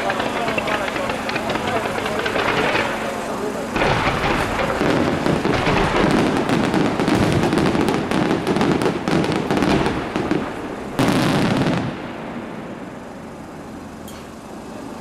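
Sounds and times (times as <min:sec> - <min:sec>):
fireworks bangs and crackling: 0:00.0 - 0:13.4
loud fireworks blast: 0:00.0 - 0:14.7.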